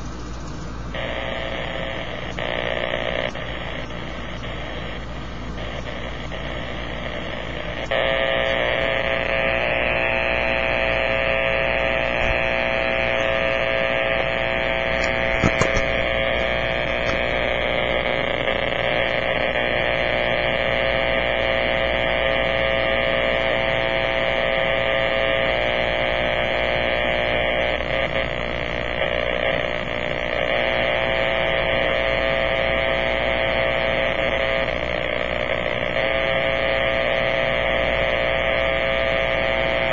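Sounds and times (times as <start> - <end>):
harsh radio buzz with hiss: 0.7 - 39.9
brief radio click: 12.1 - 13.4, 14.9 - 17.4.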